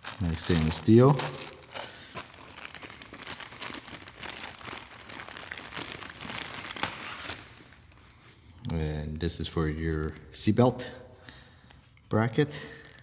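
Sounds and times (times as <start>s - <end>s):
plastic bags crinkling: 0.0s - 8.2s.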